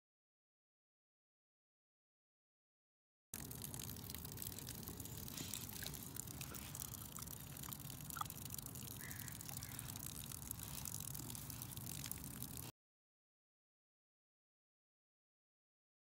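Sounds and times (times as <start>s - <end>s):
water spraying onto grass: 3.4s - 12.7s.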